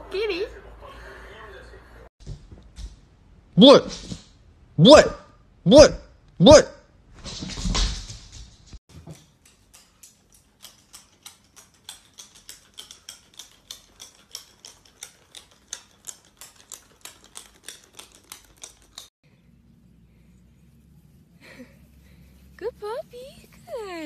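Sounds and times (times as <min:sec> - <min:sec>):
toy clicking on tile floor: 0:08.9 - 0:19.1.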